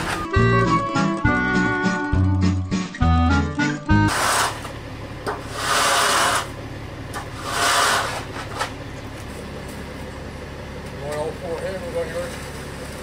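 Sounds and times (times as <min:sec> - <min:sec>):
truck engine idling: 0:00.0 - 0:13.0
tools scraping wet concrete: 0:04.0 - 0:06.6, 0:07.2 - 0:08.8.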